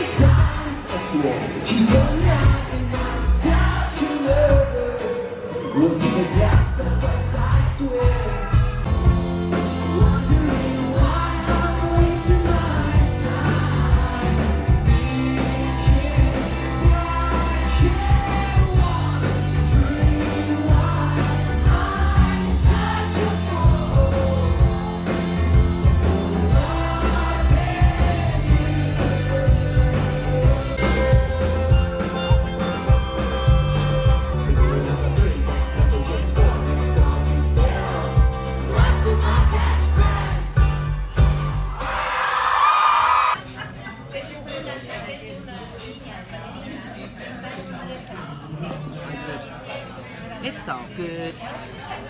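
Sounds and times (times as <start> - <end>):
person singing: 0.0 - 8.6, 9.7 - 32.9
live rock band playing: 0.0 - 42.2.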